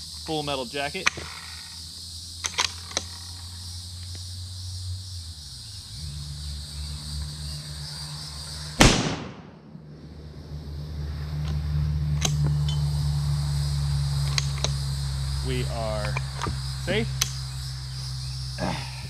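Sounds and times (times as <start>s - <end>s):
insects chorus: 0.0s - 19.0s
rifle shot with echo: 8.8s - 9.8s.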